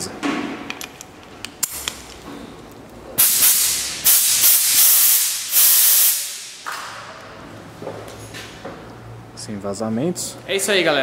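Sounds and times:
compressed air hissing: 0:03.2 - 0:06.6.

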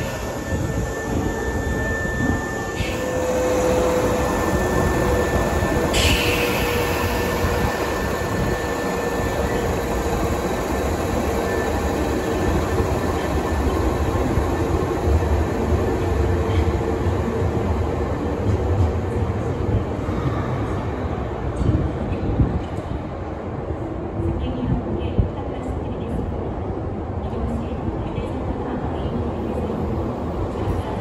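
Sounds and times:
electric train running past: 0:00.0 - 0:24.2.

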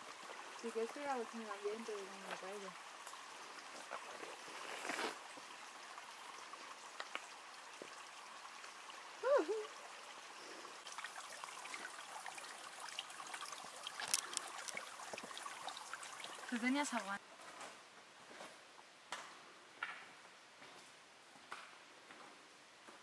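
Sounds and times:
stream trickling over rocks: 0:00.0 - 0:17.2.

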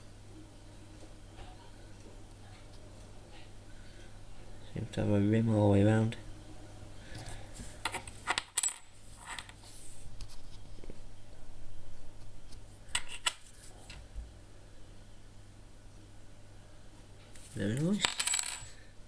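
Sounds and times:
metal coins clicking: 0:07.9 - 0:09.5, 0:17.9 - 0:18.8.

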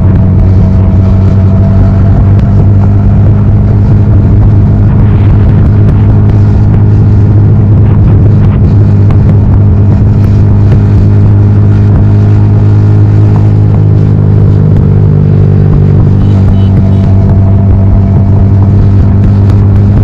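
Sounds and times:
motorcycle engine growling exhaust: 0:00.0 - 0:20.0.

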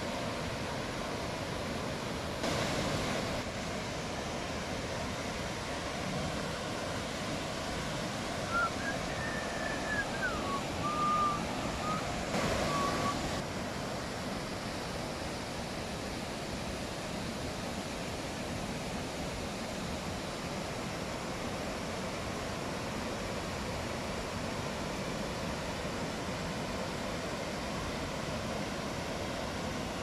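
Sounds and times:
waterfall rushing over rocks: 0:00.0 - 0:30.0
thin whistle-like notes: 0:08.4 - 0:13.3.

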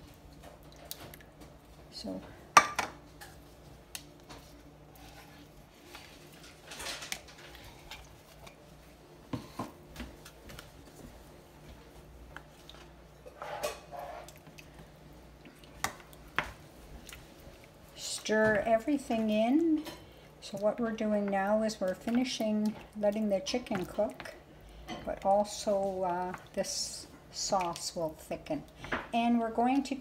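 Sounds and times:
low steady hum: 0:00.0 - 0:30.0
spoon scraping a pan: 0:13.2 - 0:14.4.

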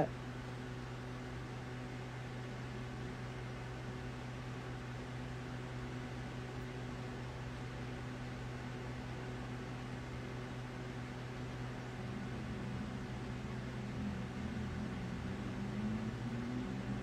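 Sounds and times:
low hum: 0:11.0 - 0:17.0.

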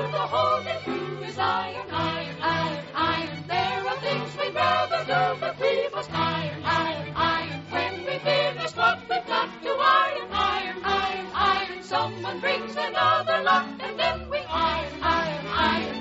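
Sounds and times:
choir singing: 0:00.0 - 0:16.0
orchestra playing: 0:10.2 - 0:16.0.

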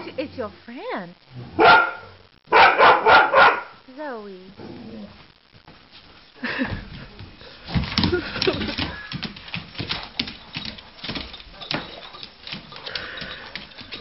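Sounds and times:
rustling of dog's body: 0:05.1 - 0:14.0
dog claws clicking on wooden floor: 0:07.7 - 0:14.0.

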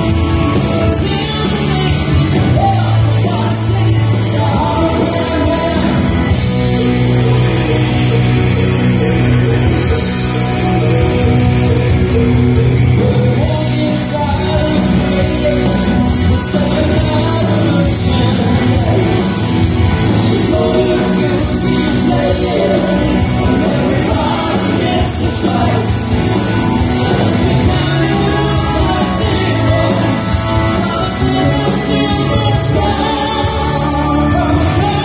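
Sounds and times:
man singing: 0:00.0 - 0:06.6, 0:13.0 - 0:35.0
drums: 0:00.0 - 0:35.0
electric guitars: 0:00.0 - 0:35.0.

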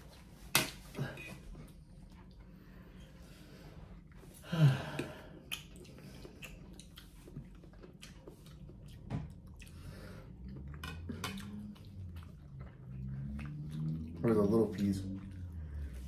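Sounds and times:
chewing: 0:03.9 - 0:16.0.

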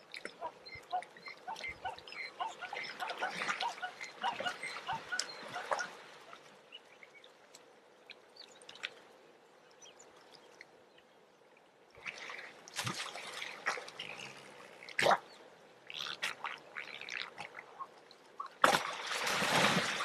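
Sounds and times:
water splashing and dripping: 0:12.0 - 0:15.3, 0:15.9 - 0:20.0.

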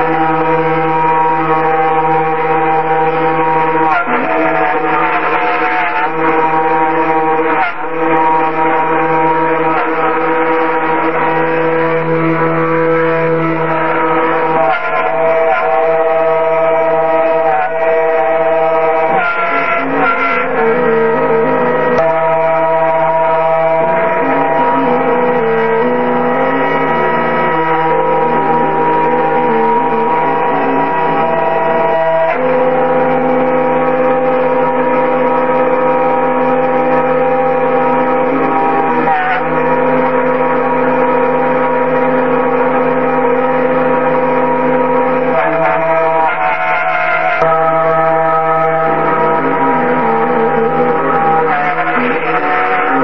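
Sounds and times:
milling machine spindle whine: 0:00.0 - 0:53.0
stepper motor tones: 0:00.0 - 0:53.0.

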